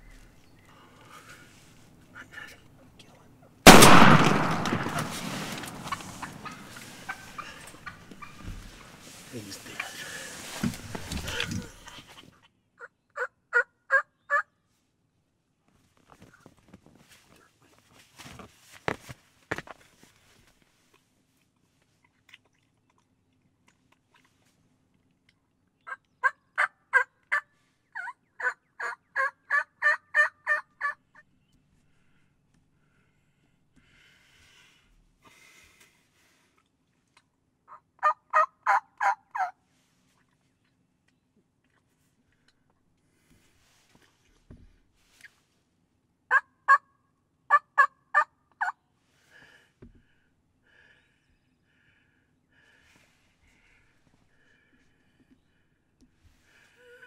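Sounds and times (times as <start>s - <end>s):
faint rustling: 3.9s - 12.4s
turkey yelping: 5.8s - 8.4s, 12.8s - 14.4s, 25.9s - 27.4s, 28.0s - 31.0s, 37.7s - 39.5s, 46.3s - 46.9s, 47.5s - 48.7s.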